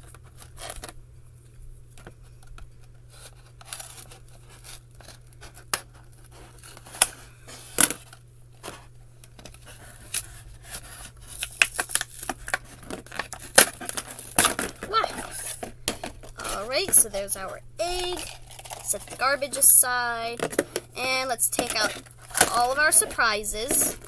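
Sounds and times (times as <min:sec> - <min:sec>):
plastic wrapper crinkling: 0:01.9 - 0:19.2, 0:21.5 - 0:24.0
scissors snipping plastic: 0:21.6 - 0:24.0.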